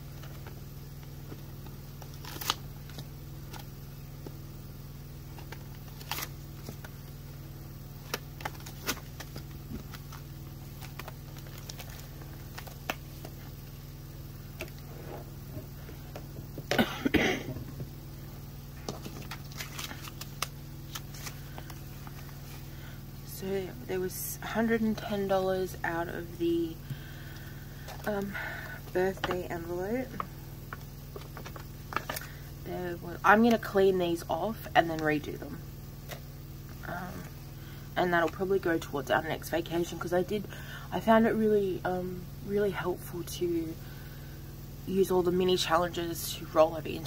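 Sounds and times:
steady low hum: 0:00.0 - 0:47.0
plastic pouch crinkling: 0:08.0 - 0:13.4, 0:18.9 - 0:22.6.

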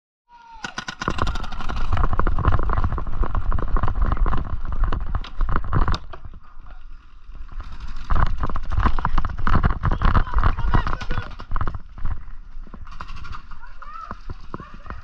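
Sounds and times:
running footsteps on dirt: 0:07.2 - 0:15.0.

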